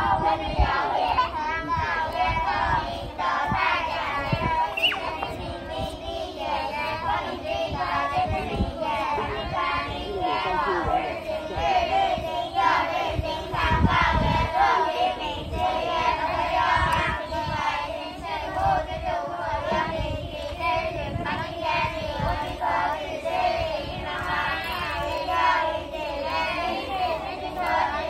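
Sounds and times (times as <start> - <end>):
children singing in unison: 0.0 - 28.0.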